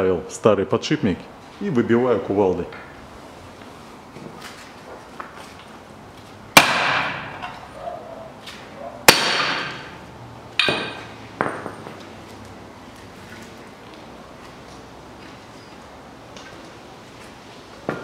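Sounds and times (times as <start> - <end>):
sledgehammer striking metal: 6.6 - 7.6, 9.0 - 10.0, 10.6 - 11.8.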